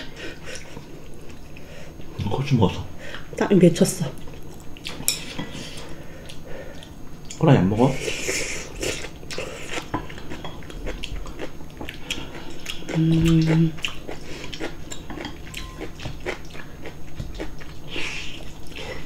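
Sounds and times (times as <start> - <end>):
chewing: 8.8 - 19.0
person humming: 12.8 - 13.8.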